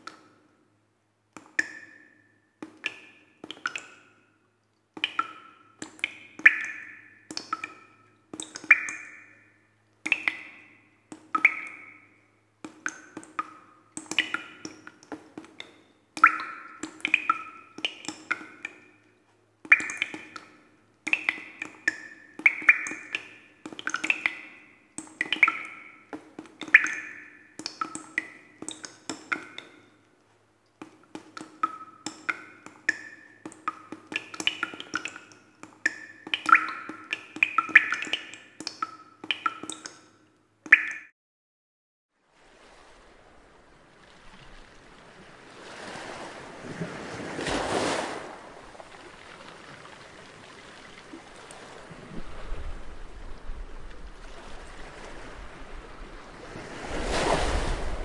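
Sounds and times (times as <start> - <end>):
low steady hum: 0.0 - 41.0.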